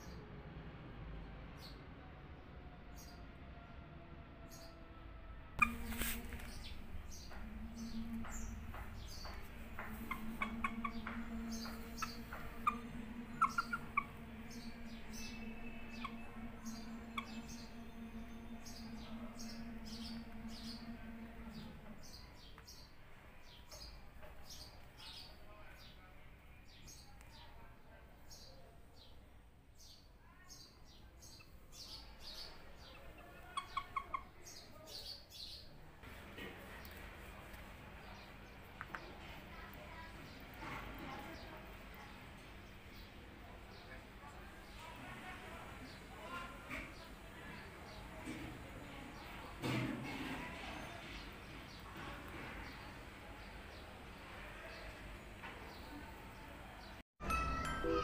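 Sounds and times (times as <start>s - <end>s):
steady low hum: 5.1s - 24.4s
rooster chirping and clucking: 5.6s - 22.2s, 33.0s - 34.4s
short lower bird notes: 5.6s - 23.6s
small birds chirping: 5.6s - 57.0s.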